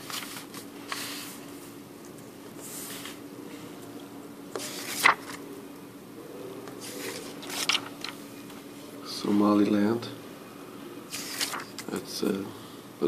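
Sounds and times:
paper banknotes rustling: 0:00.0 - 0:01.3, 0:04.6 - 0:05.4, 0:06.8 - 0:08.2, 0:11.1 - 0:11.9.

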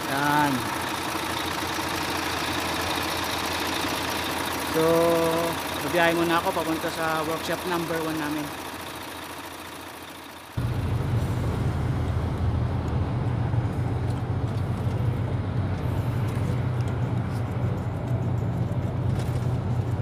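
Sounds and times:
truck engine drone: 0:00.0 - 0:20.0
road and wind noise: 0:10.5 - 0:20.0.

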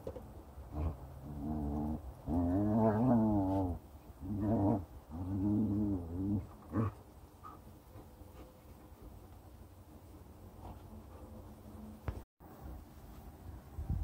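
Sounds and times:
animal growling: 0:00.7 - 0:07.0.

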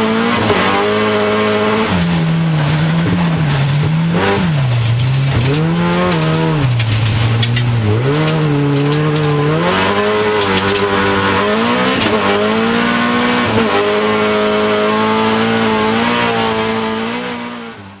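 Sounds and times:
race car engine revving: 0:00.0 - 0:18.0
tyre squeal: 0:01.9 - 0:06.7.

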